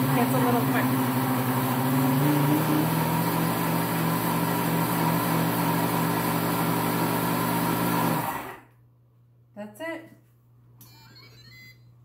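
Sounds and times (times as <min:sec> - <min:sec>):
blender motor crushing ice: 0:00.0 - 0:08.7.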